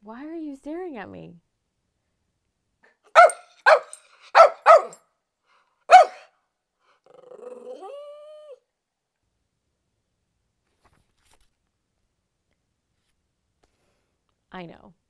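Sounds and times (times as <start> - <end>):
small dog barking: 3.1 - 5.0, 5.9 - 6.3
dog whining: 3.2 - 5.0, 5.9 - 6.2, 7.0 - 8.6.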